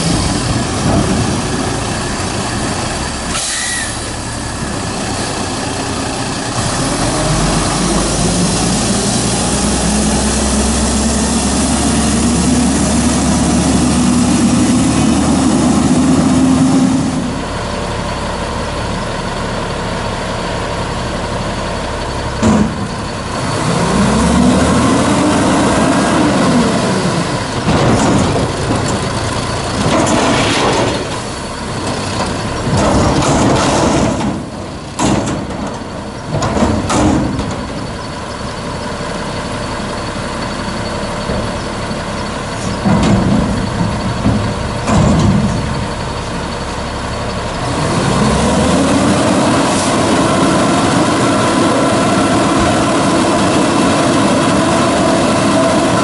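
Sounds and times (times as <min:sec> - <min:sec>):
truck diesel engine revving: 0:00.0 - 0:56.0
hydraulic forks lifting dumpster: 0:27.1 - 0:56.0.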